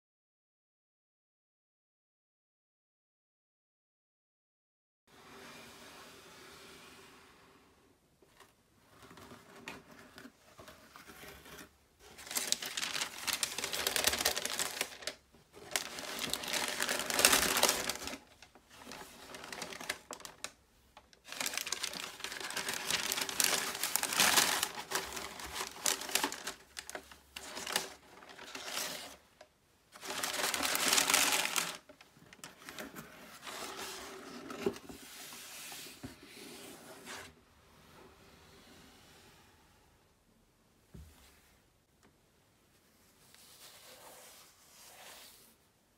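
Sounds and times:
tissue paper crinkling: 12.0 - 35.7.

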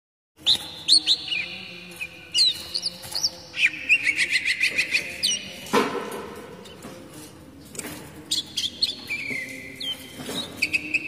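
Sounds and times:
bird repeated chirps: 0.4 - 5.7, 8.3 - 11.0.

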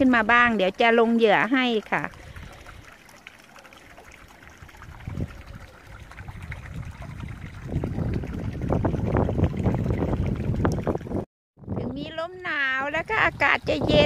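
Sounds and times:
meltwater trickling: 0.0 - 11.2
wind buffeting microphone: 2.0 - 2.8, 4.5 - 14.0.

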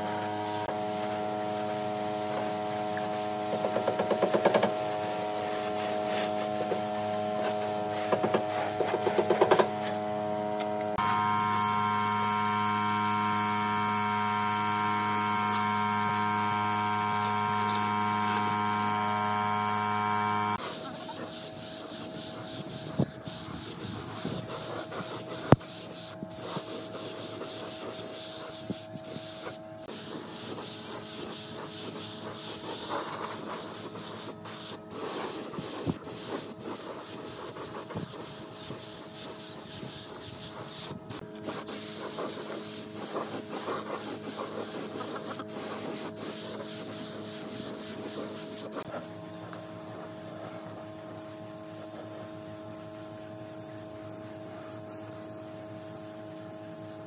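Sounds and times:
small power tool running: 6.4 - 20.6.

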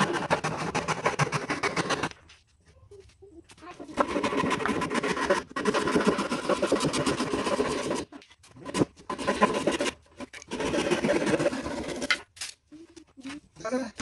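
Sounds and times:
hand saw cutting wood: 0.0 - 2.2, 3.8 - 12.6.

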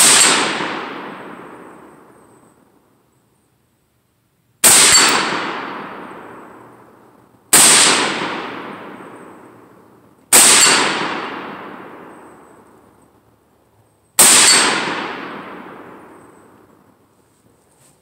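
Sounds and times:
rifle shots: 0.0 - 2.4, 4.6 - 12.8, 14.2 - 16.8
gunshot echo through woods: 0.0 - 2.9, 4.6 - 13.0, 14.2 - 17.0.

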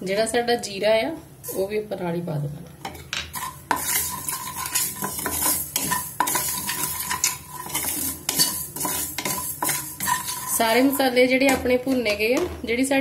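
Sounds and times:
wooden spatula scraping seeds in pan: 3.3 - 12.5.

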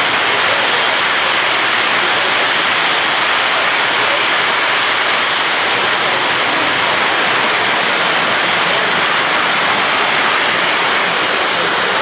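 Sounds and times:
model train wheels rolling on track: 0.0 - 12.0.

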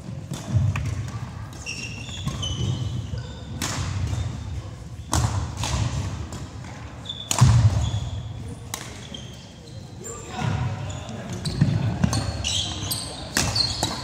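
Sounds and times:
shoes squeaking on wooden floor: 1.6 - 3.5, 9.1 - 14.0.

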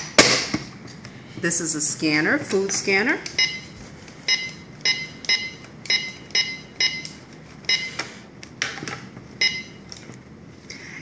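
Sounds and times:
toy scanner beeping: 4.3 - 7.1, 7.7 - 8.0, 9.4 - 9.8.

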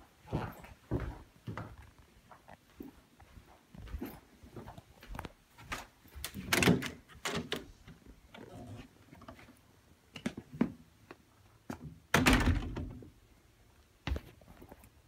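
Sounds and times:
glass door clicks and knocks: 6.4 - 7.7, 12.1 - 13.1.

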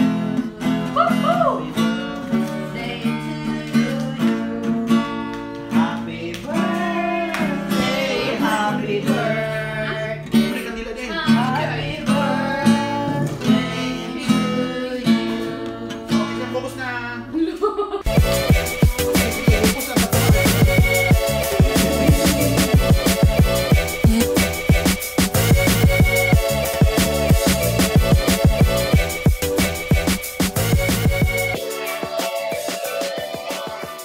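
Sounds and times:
acoustic guitar strumming: 0.0 - 16.8, 18.1 - 33.3
person singing: 0.8 - 10.6, 18.1 - 34.0
recorded music with strong beat: 18.1 - 34.0.

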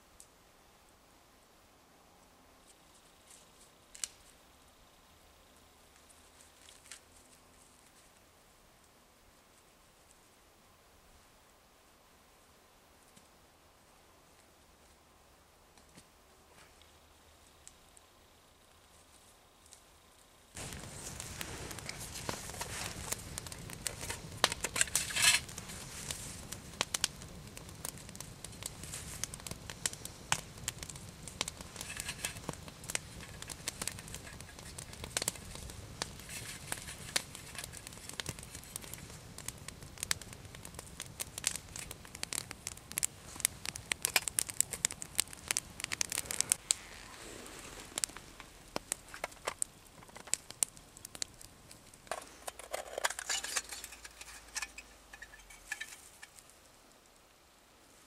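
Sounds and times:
wood scraped into tinder: 20.6 - 26.3, 52.1 - 56.4.

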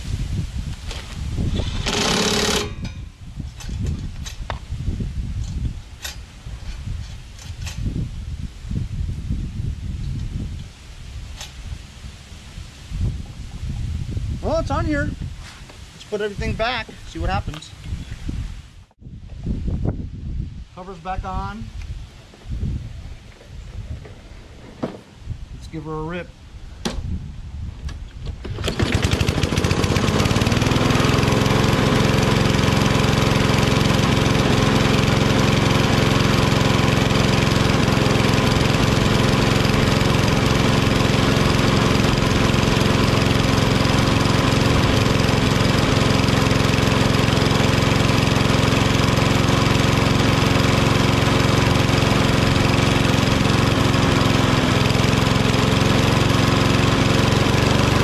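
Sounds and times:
mower engine pull-started and running: 0.7 - 4.6, 5.4 - 7.9, 27.8 - 58.0.

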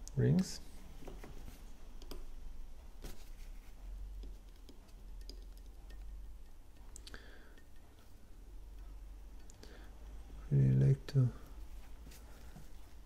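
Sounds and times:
steady low hum: 0.0 - 13.0
light clicks and taps of metal tool: 4.2 - 9.7.

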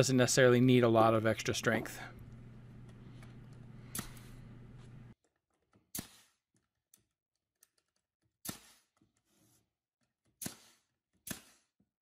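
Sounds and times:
nail gun shots: 8.4 - 8.8, 10.4 - 11.7.

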